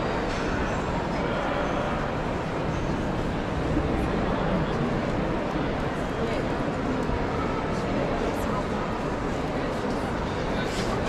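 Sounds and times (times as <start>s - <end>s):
indistinct crowd chatter: 0.0s - 11.0s
footsteps of many people: 2.2s - 11.0s.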